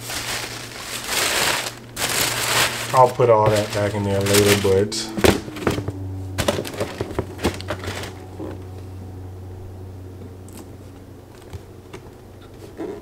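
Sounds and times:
steady low hum: 0:00.0 - 0:13.0
shoebox knocks and rustles: 0:03.5 - 0:08.2.

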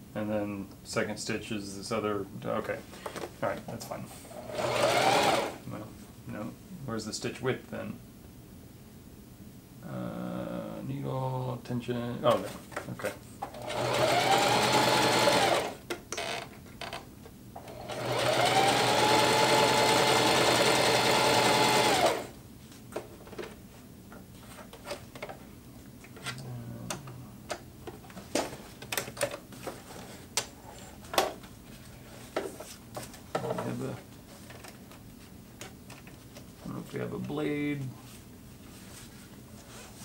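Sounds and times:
sewing machine motor whine: 0:04.4 - 0:05.6, 0:13.6 - 0:16.4, 0:17.6 - 0:22.3.

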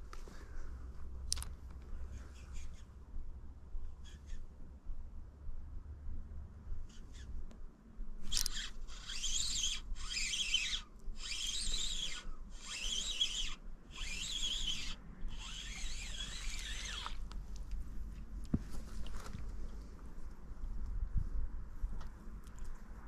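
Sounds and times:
spinning reel whirring: 0:08.2 - 0:17.3.

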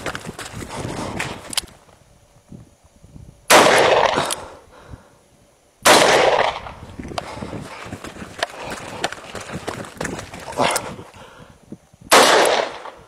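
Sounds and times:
revolver gunshots: 0:03.5 - 0:04.4, 0:05.8 - 0:06.8, 0:12.1 - 0:13.0.

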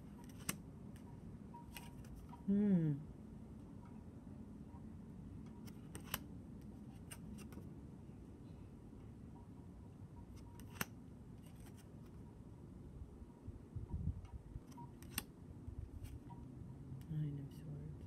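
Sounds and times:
low steady hum: 0:00.0 - 0:18.0
cards clicking and snapping: 0:00.1 - 0:00.6, 0:01.7 - 0:02.4, 0:05.6 - 0:06.3, 0:06.9 - 0:07.6, 0:10.6 - 0:12.1, 0:14.6 - 0:15.3.

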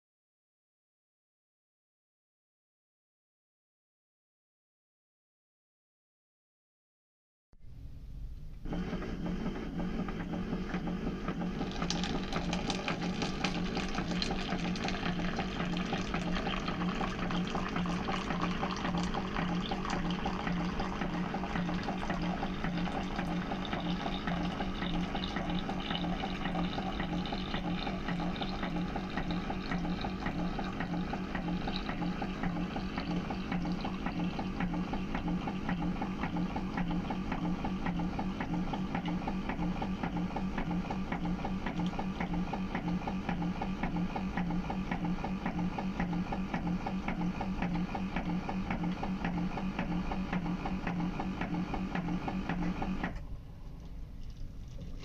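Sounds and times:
coffee maker pump humming: 0:08.4 - 0:55.0
coffee streaming into cup: 0:11.4 - 0:34.9.

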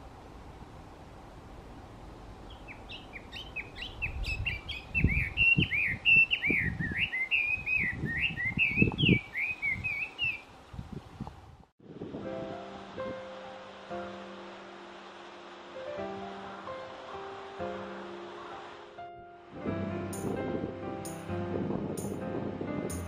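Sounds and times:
bird singing whistled phrases: 0:02.6 - 0:10.4
background music: 0:12.0 - 0:23.0.

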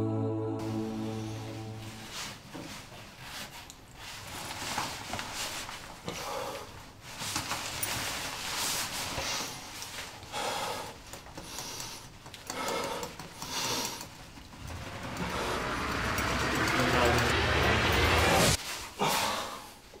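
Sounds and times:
man breathing heavily: 0:06.1 - 0:06.8, 0:09.1 - 0:16.6.

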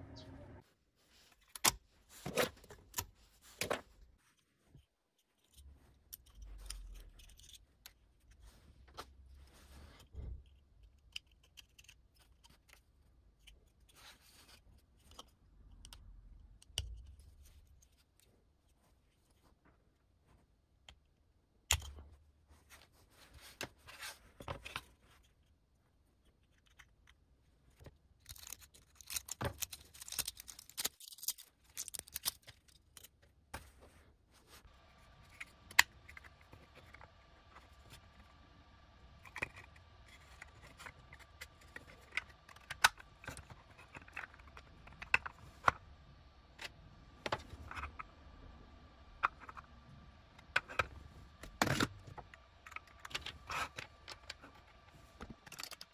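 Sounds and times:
plastic parts clicking and scraping: 0:01.3 - 0:09.2, 0:09.8 - 0:19.4, 0:23.5 - 0:33.8, 0:34.7 - 0:55.9
faint steady hum: 0:32.9 - 0:55.9.

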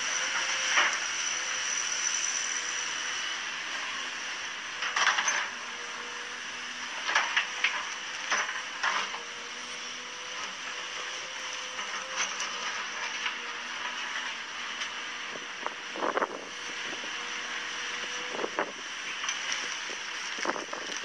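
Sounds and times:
excavator running: 0:00.0 - 0:21.0.

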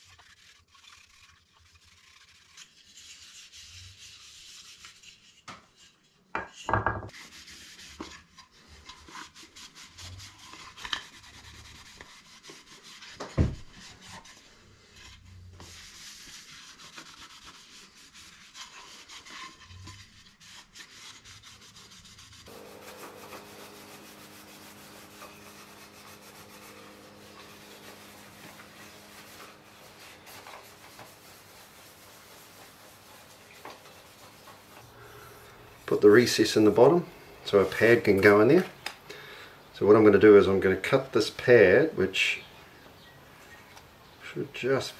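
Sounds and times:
hand rubbing on wood: 0:15.0 - 0:38.6.

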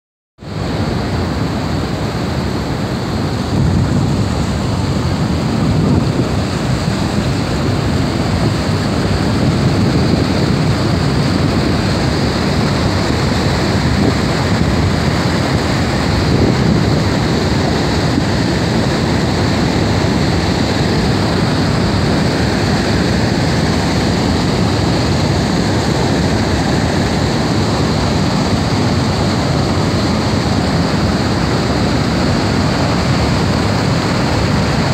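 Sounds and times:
waterfall rushing: 0:00.4 - 0:34.9.

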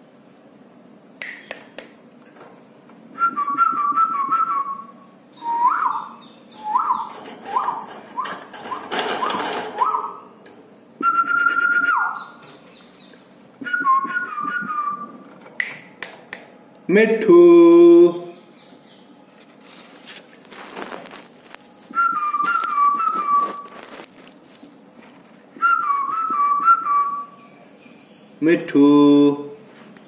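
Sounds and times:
person whistling: 0:03.2 - 0:04.8, 0:05.4 - 0:08.3, 0:11.0 - 0:12.2, 0:13.6 - 0:15.2, 0:21.9 - 0:23.7, 0:25.6 - 0:27.4.

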